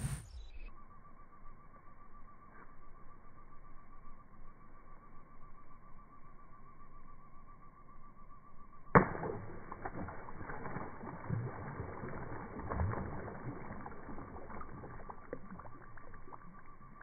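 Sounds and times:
fish splashing in water: 9.0s - 17.0s.

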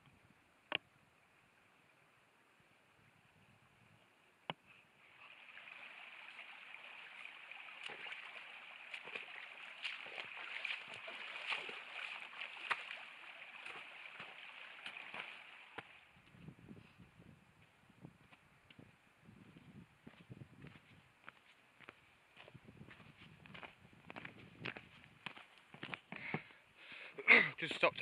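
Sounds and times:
stream babbling and splashing: 4.8s - 16.5s.

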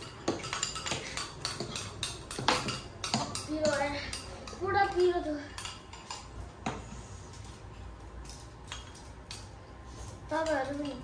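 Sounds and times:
cutlery clicking on bowls: 0.0s - 6.8s, 8.2s - 9.6s, 10.4s - 11.0s.

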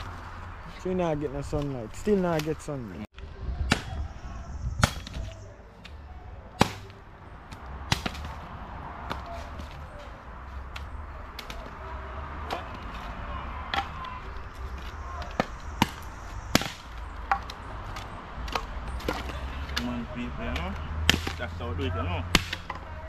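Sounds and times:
machete chopping sticks: 6.6s - 8.4s, 12.4s - 21.5s, 22.2s - 22.8s.

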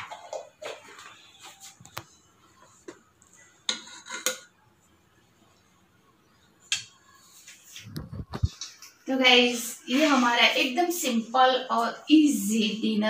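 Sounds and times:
ladle scraping a pot: 3.7s - 4.5s.

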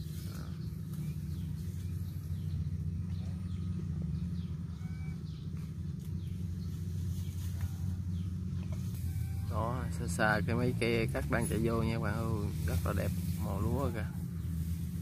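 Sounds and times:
faint bird chirps: 0.0s - 9.9s
distant combine harvester engine drone: 0.0s - 15.0s.

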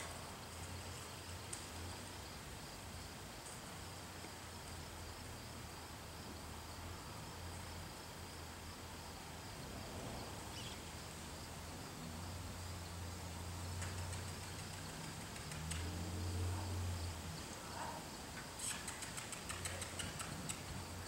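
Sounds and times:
crickets chirping: 0.0s - 21.0s
sharp clicks: 13.8s - 15.9s, 18.6s - 20.7s.

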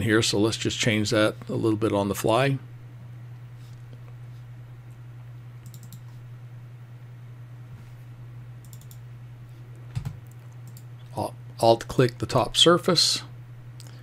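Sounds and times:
steady low hum: 0.0s - 14.0s
keyboard and mouse clicks: 5.6s - 6.1s, 8.6s - 9.0s, 9.9s - 10.9s.

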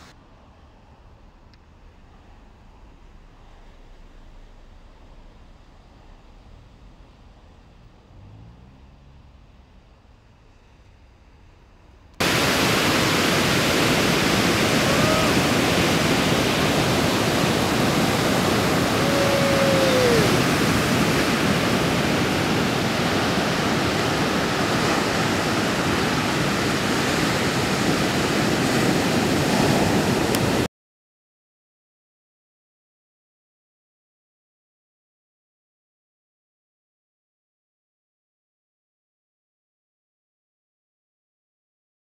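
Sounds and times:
ocean surf breaking: 12.2s - 30.7s.

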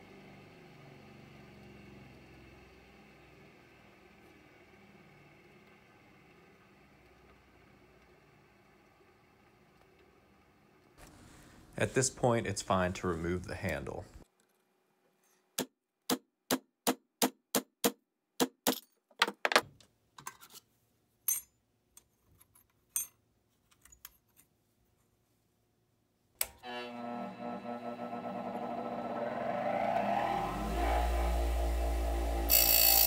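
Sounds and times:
bench grinder humming: 26.6s - 33.0s.

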